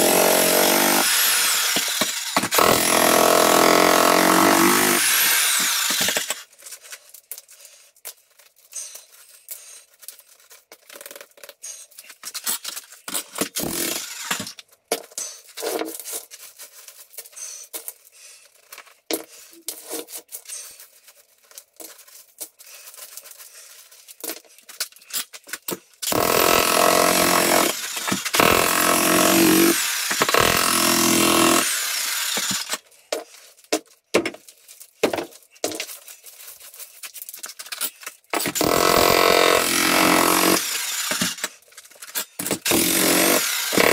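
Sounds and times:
jackhammer breaking concrete: 0:00.0 - 0:06.5, 0:13.1 - 0:14.6, 0:26.0 - 0:32.8, 0:38.4 - 0:43.9
concrete chunks clinking and scraping: 0:05.5 - 0:26.1, 0:32.2 - 0:38.6, 0:40.6 - 0:42.8.

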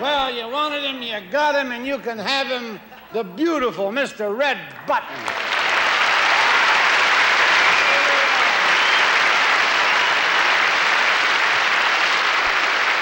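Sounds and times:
audience applauding: 0:05.1 - 0:13.0.

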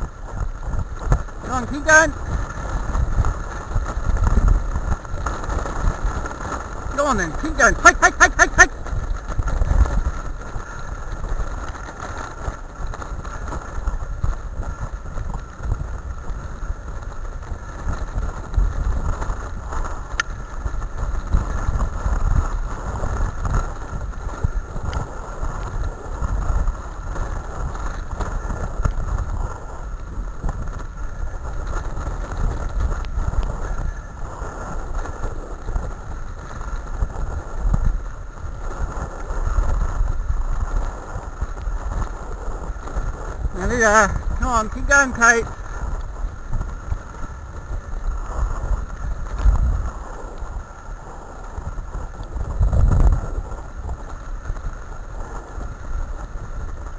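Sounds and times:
cart wheels rumbling over dirt: 0:00.0 - 0:56.9
wind buffeting microphone: 0:00.0 - 0:56.9.

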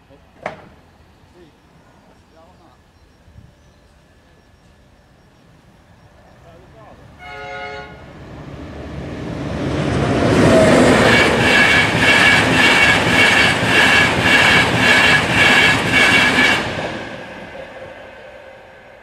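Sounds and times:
express train passing: 0:00.0 - 0:19.0
train horn blast: 0:07.2 - 0:08.2, 0:10.4 - 0:17.8.

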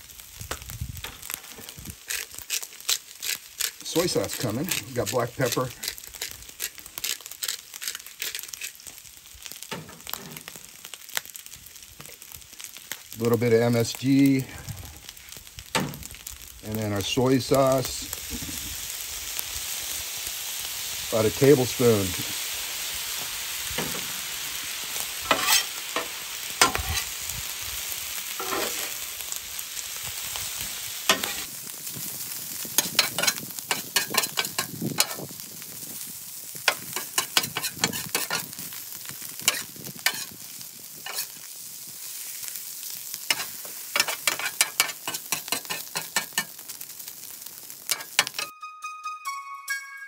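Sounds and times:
rice sizzling on a griddle: 0:00.0 - 0:48.5
metal spatula scraping griddle: 0:01.0 - 0:08.7, 0:25.2 - 0:27.2, 0:28.3 - 0:29.0, 0:31.1 - 0:31.5, 0:32.8 - 0:35.2, 0:36.7 - 0:38.5, 0:39.4 - 0:40.4, 0:41.0 - 0:41.4, 0:43.3 - 0:46.6, 0:47.9 - 0:48.5
pepper mill grinding: 0:01.7 - 0:09.0, 0:25.3 - 0:27.1, 0:31.1 - 0:31.5, 0:32.8 - 0:35.2, 0:36.7 - 0:38.5, 0:41.0 - 0:41.4, 0:43.3 - 0:46.5, 0:47.9 - 0:48.5.

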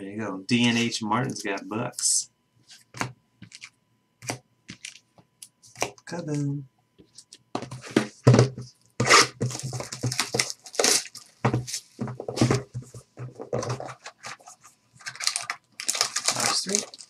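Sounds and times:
plastic wrapping crinkling: 0:09.0 - 0:12.9, 0:13.5 - 0:17.0.

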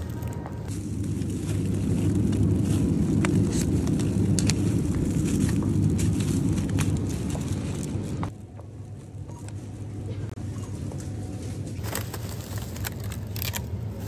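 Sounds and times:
refrigerated display case hum: 0:00.0 - 0:14.0
plastic trays crackling: 0:11.8 - 0:14.0.

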